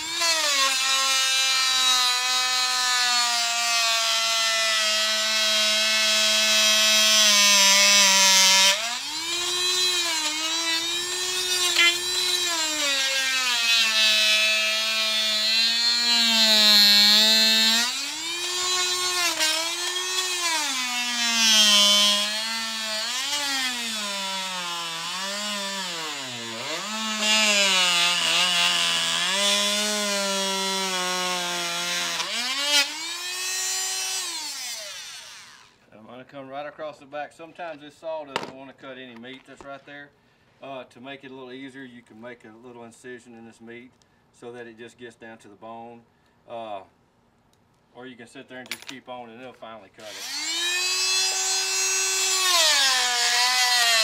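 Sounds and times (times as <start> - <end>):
oscillating saw cutting bone: 0.0 - 3.8, 4.6 - 35.8, 50.0 - 54.0.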